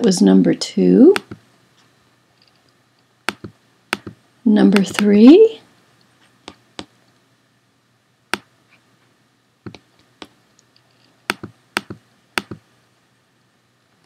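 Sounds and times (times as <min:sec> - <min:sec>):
computer mouse clicks: 0:01.2 - 0:01.4, 0:03.3 - 0:04.2, 0:09.7 - 0:12.6.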